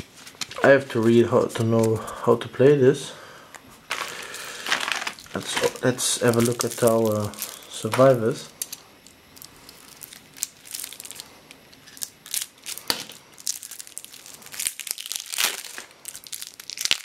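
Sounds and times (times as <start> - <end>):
plastic wrapper crinkling and tearing: 3.9 - 8.8, 9.4 - 17.0.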